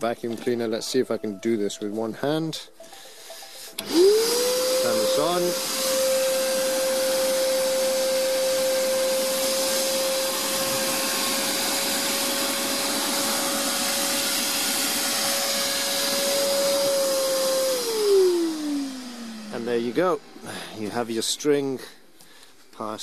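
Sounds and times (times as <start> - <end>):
vacuum cleaner running: 3.1 - 21.7.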